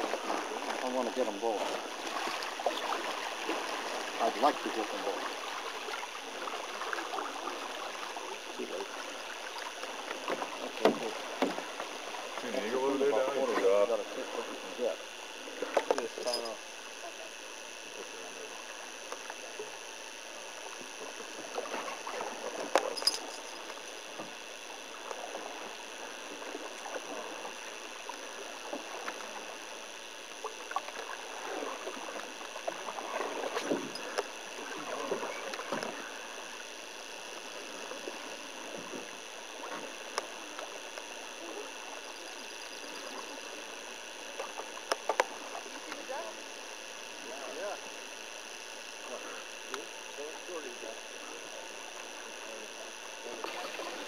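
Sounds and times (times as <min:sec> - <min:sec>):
paddle splashes and drips: 0:00.0 - 0:12.5, 0:30.4 - 0:36.3, 0:53.4 - 0:54.0
steady hiss: 0:13.7 - 0:54.0.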